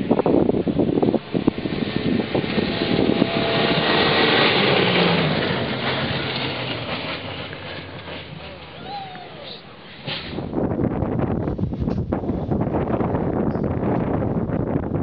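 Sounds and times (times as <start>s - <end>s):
off-road vehicle engine passing: 0.0s - 10.7s.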